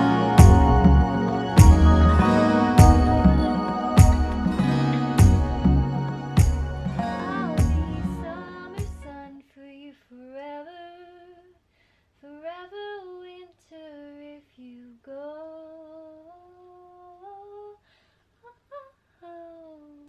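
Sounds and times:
background music: 0.0 - 9.1.

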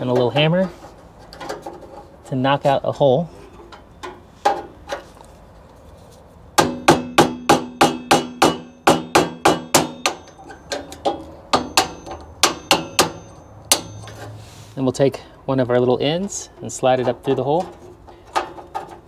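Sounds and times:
metal box ringing: 6.6 - 14.3.

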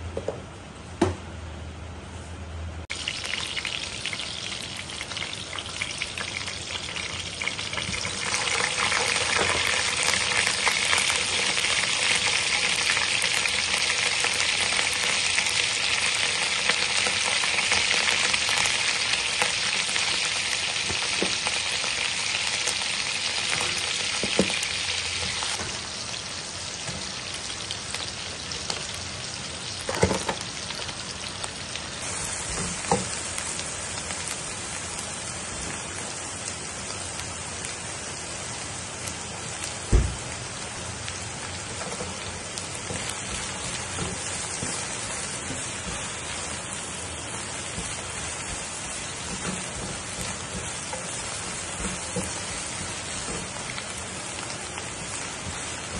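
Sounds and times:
spices sizzling in hot oil: 2.9 - 55.9.

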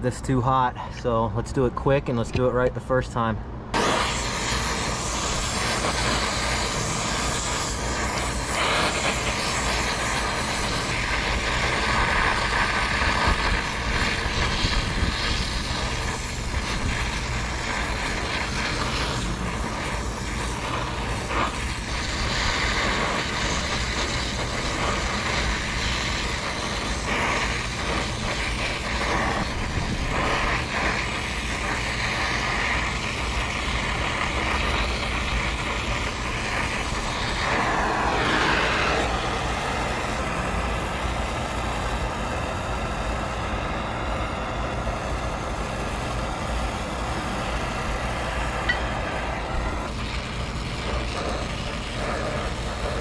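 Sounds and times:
torch flame hissing: 3.7 - 53.0
wind buffeting microphone: 4.3 - 40.3.

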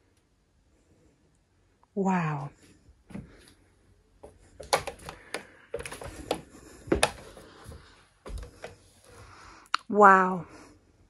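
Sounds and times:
footsteps on wooden floorboards: 3.1 - 3.5, 4.2 - 9.3.

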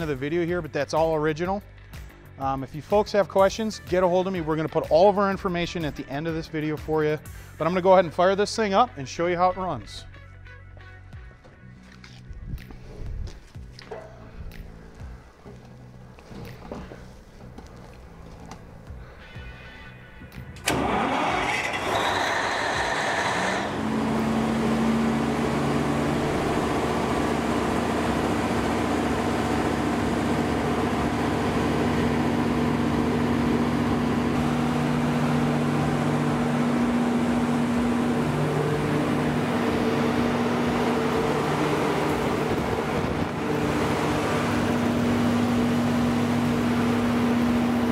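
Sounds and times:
diesel generator starting up: 20.5 - 47.9.

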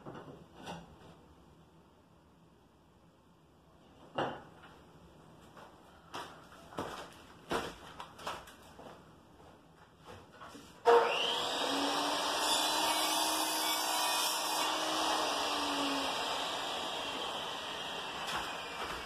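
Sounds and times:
power tool running: 10.9 - 19.0.

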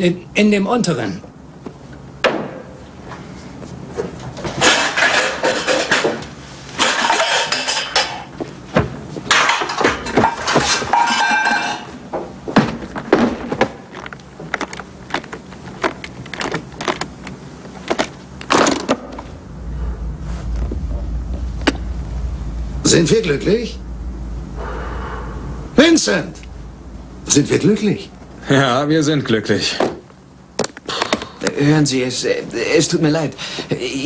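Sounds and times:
things clattering in a cupboard: 4.1 - 19.2.

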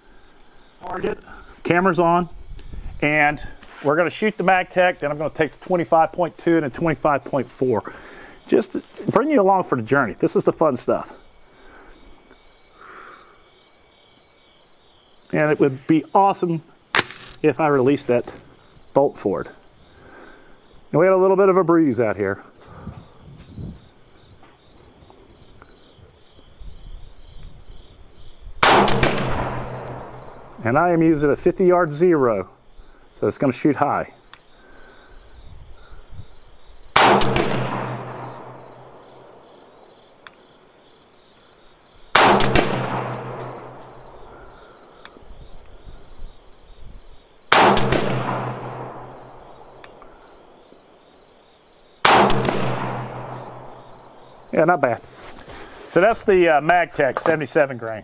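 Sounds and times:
crickets trilling: 0.0 - 58.0
rifle shot with echo: 28.6 - 30.6, 37.0 - 39.4, 42.1 - 44.3, 47.5 - 49.9, 52.0 - 54.4.

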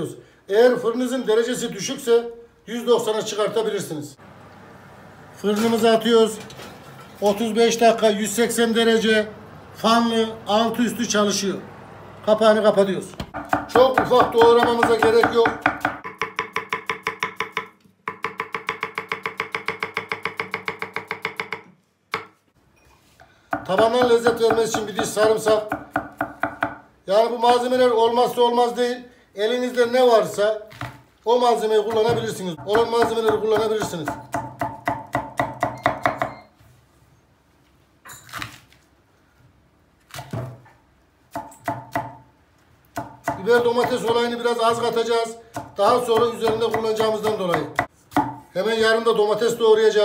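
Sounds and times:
knife chopping on wooden board: 13.2 - 22.4, 23.5 - 26.8, 31.9 - 36.4, 41.3 - 42.2, 42.9 - 44.2, 45.6 - 48.4.

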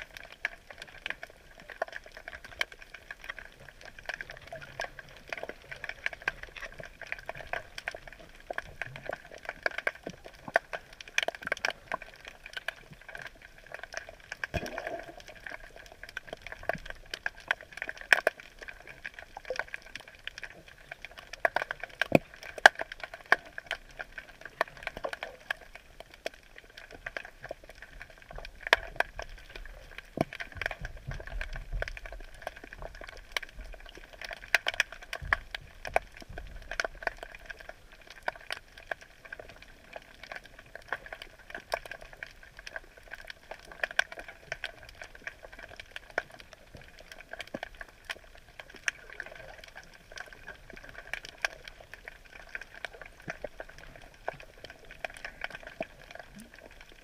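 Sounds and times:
underwater crackling clicks and pops: 0.0 - 57.0.

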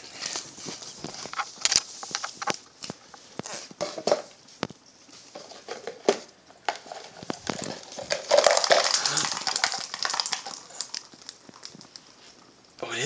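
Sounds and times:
crab legs tapping on plastic: 5.8 - 12.0.

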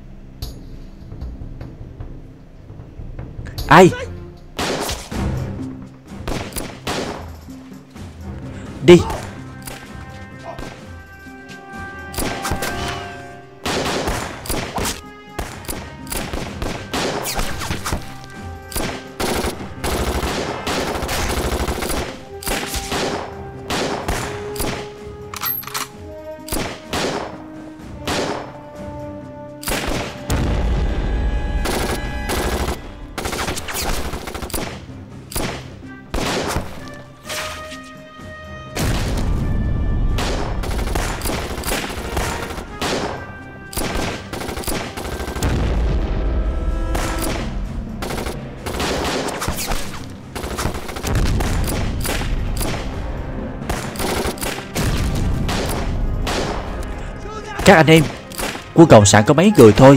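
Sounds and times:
dramatic orchestral music: 0.0 - 59.9
rapid gunfire: 13.6 - 18.0, 18.7 - 24.9, 26.5 - 27.4, 29.7 - 30.4, 31.6 - 36.8, 40.2 - 45.8, 47.0 - 53.0, 53.6 - 56.7.

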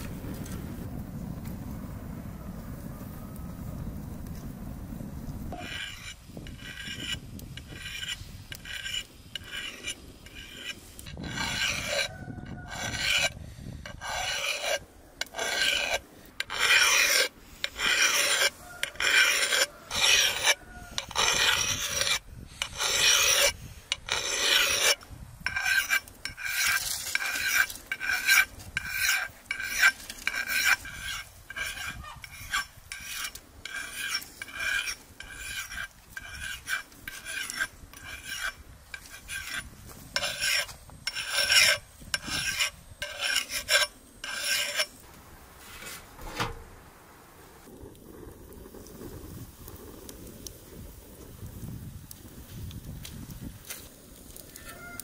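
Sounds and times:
metal file rasping on axe blade: 5.5 - 45.0.

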